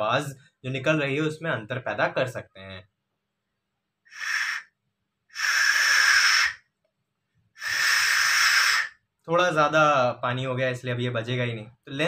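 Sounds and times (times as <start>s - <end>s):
breathy blowing across test tube: 4.1s - 6.7s, 7.5s - 9.0s.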